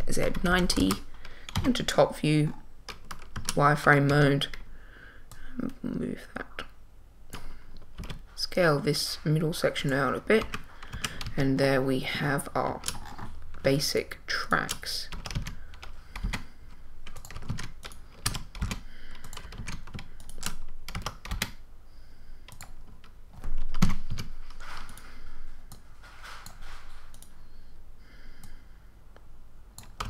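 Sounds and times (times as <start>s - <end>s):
keyboard keys clicking: 0.2s - 2.0s, 14.5s - 16.4s, 17.0s - 21.6s, 22.5s - 25.0s, 29.8s - 30.0s.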